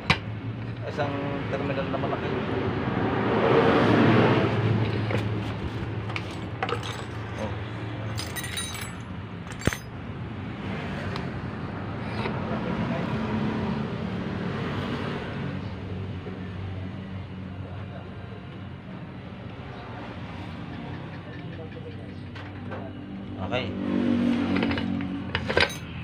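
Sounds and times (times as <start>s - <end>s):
metal parts clinking: 6.1s - 9.9s, 24.6s - 26.0s.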